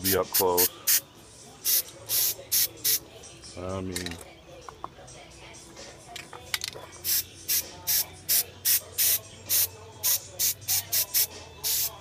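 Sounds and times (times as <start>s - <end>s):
aerosol can spraying: 1.6s - 3.0s, 7.0s - 12.0s.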